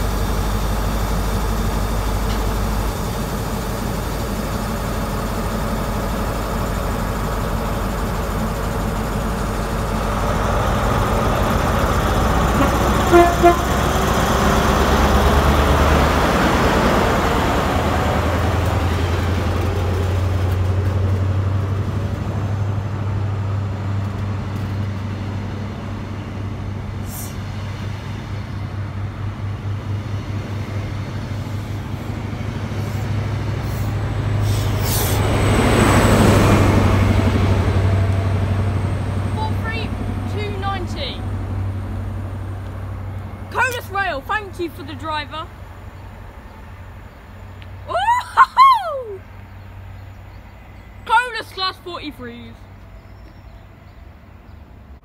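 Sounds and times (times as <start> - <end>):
diesel engine hum: 0.0 - 55.0
train horn toots: 12.5 - 14.0
coaches rolling by: 35.3 - 54.9.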